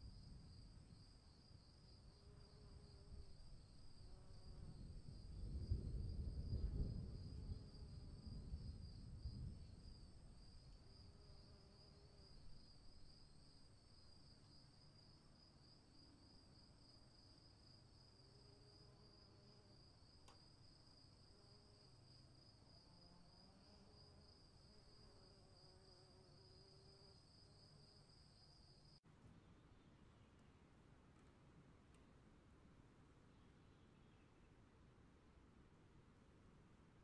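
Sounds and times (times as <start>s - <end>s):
crickets chirping: 0.0s - 29.0s.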